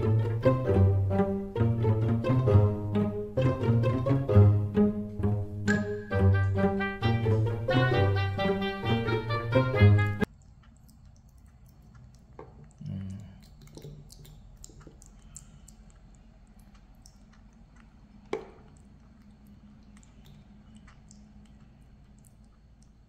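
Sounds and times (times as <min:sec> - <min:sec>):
wet smacking and chewing: 0:10.2 - 0:23.0.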